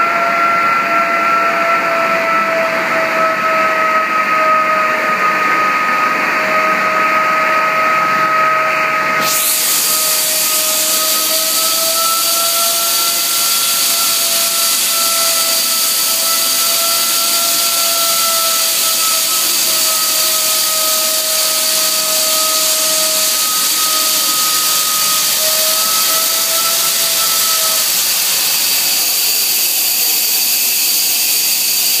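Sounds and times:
two-note machine whine: 0.0s - 32.0s
abrasive blasting hiss: 9.2s - 32.0s.

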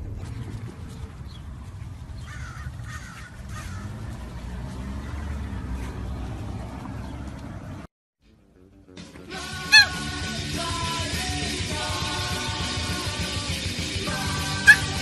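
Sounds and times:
steady low rumble: 0.0s - 4.4s
short calls: 9.6s - 10.3s, 14.4s - 15.0s.

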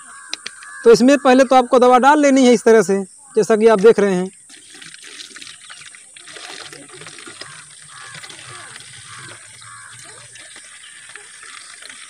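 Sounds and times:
liquid trickling into a bottle: 3.8s - 12.0s.

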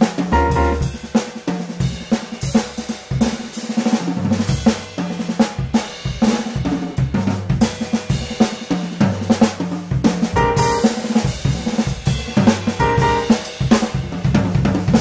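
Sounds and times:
drum kit beat: 0.0s - 15.0s
held bass line: 0.3s - 0.9s, 10.4s - 10.9s, 12.8s - 13.3s.

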